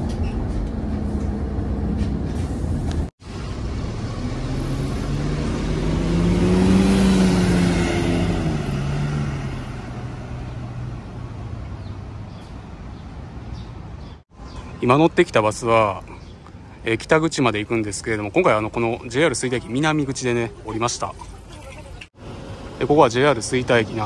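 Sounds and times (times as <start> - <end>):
bus pulling away: 0.0 - 14.2, 22.2 - 24.0.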